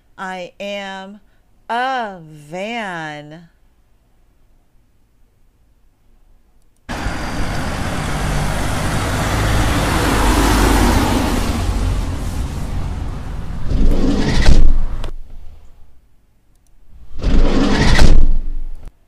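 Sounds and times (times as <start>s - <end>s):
van engine running: 6.9s - 13.7s.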